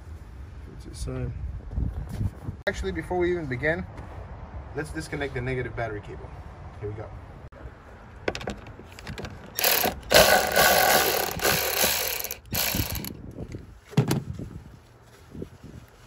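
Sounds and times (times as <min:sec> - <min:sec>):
ratchet wrench clicking: 0:09.0 - 0:13.2.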